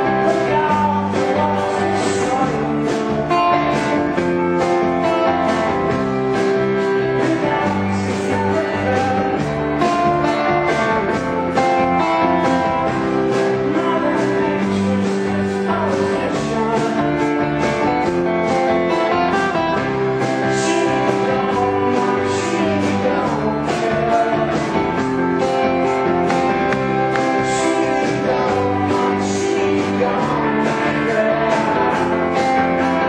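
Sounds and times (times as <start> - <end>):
bass guitar: 0.0 - 33.0
drums: 0.0 - 33.0
electric guitars: 0.0 - 33.0.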